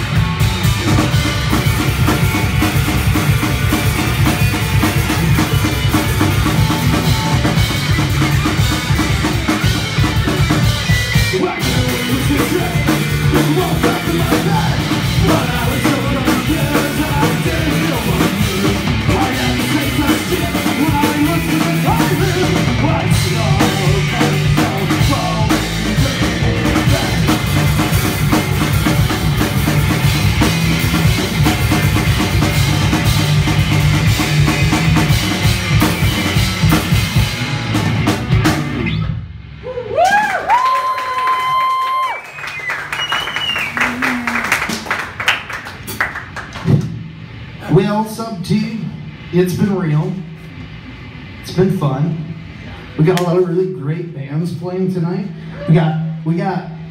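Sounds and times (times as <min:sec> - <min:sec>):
electric guitar: 0:00.0 - 0:42.1
drum kit: 0:00.0 - 0:51.8
electric bass: 0:00.0 - 0:56.9.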